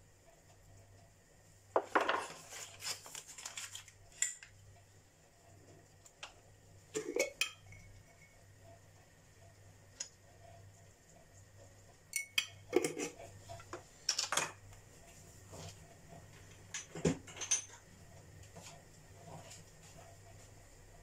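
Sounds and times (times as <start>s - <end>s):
spoon clinking against metal bowl: 12.1s - 13.0s.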